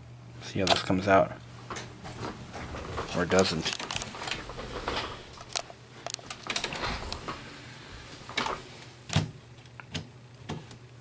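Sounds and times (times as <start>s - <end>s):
low steady hum: 0.0s - 9.8s
printer clicks and clunks: 8.2s - 9.3s.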